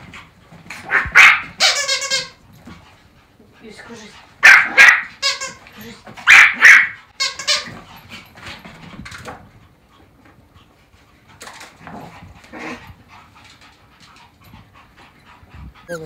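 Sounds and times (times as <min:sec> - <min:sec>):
small dogs yapping: 0:00.7 - 0:02.3, 0:04.4 - 0:07.8.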